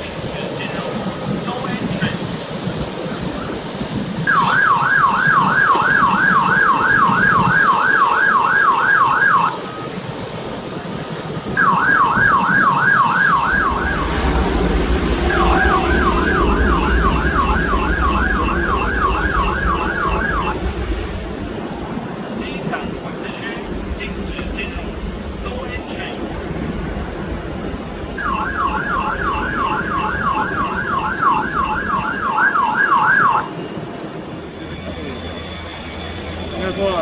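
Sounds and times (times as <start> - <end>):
jet engines spooling up: 0.0 - 37.0
electronic siren wailing: 4.2 - 9.9, 11.5 - 21.0, 28.2 - 37.0.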